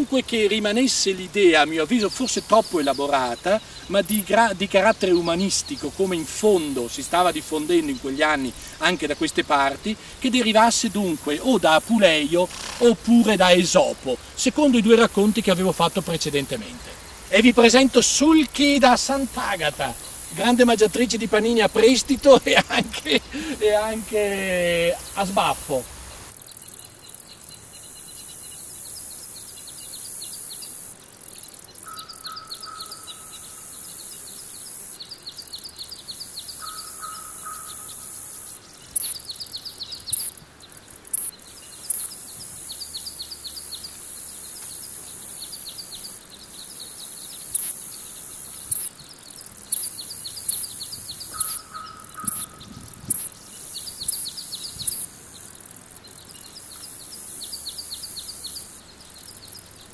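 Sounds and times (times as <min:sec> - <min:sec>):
birds singing trilled phrases: 0:00.0 - 0:59.9
steady high hiss: 0:00.0 - 0:59.9
sharp crackling snaps: 0:10.7 - 0:14.4
low falling bird call: 0:36.5 - 0:38.4, 0:49.9 - 0:55.0.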